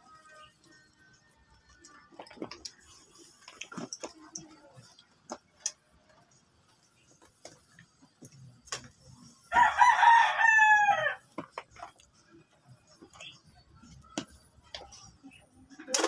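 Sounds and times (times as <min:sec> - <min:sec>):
rooster crowing: 0:09.5 - 0:11.2.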